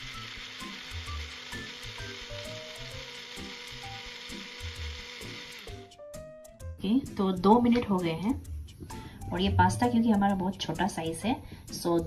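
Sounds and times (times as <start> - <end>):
electric mixer grinder running: 0.0 - 6.0.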